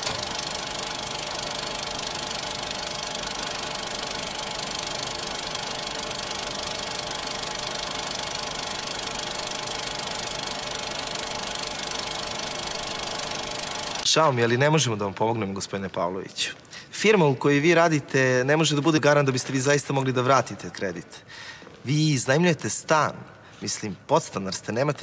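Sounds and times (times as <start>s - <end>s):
film projector whirring: 0.0s - 14.1s.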